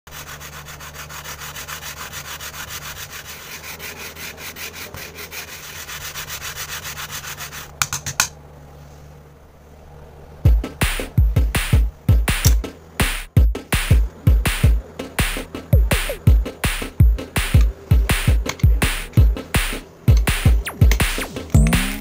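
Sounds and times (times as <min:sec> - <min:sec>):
stick rasping on sandpaper: 0:00.1 - 0:07.8.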